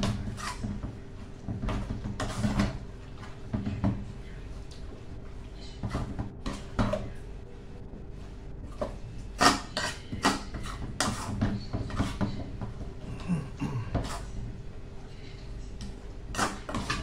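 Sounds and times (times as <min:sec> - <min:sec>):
utensil scraping metal pot: 0:00.0 - 0:00.7, 0:09.4 - 0:12.2.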